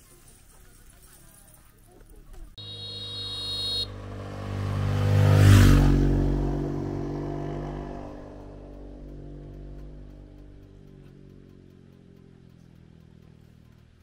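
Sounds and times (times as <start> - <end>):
high-pitched tone: 2.6 - 4.0
vehicle engine passing by: 2.6 - 14.0.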